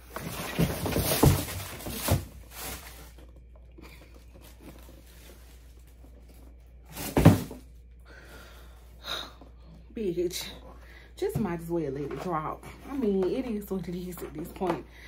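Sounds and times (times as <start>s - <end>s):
cardboard box thunks: 0.1s - 2.9s, 6.9s - 7.6s.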